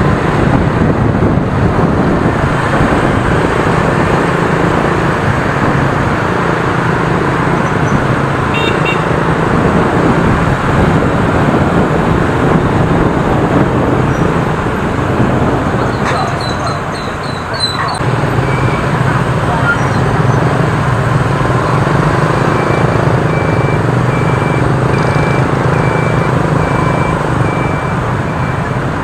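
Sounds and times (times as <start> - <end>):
motorbike engine and road noise: 0.0 - 29.0
horn toot: 8.5 - 9.1.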